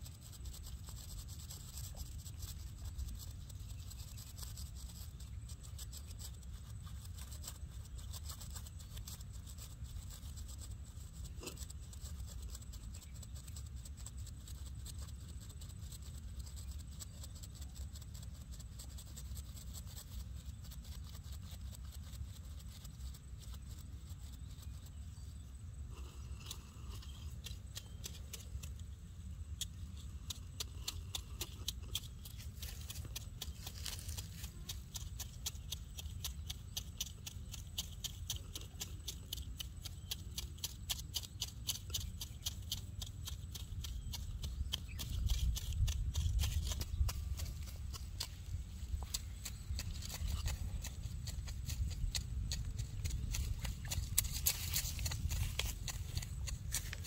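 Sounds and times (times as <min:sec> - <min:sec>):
faint clicks and rustles: 0:20.4 - 0:57.0.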